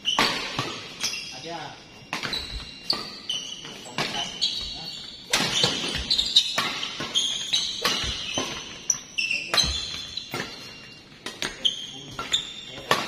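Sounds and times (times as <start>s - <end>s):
shoes squeaking on court floor: 0.0s - 13.0s
racket hitting shuttlecock: 0.2s - 1.1s, 2.1s - 4.4s, 5.2s - 10.6s, 12.2s - 13.0s.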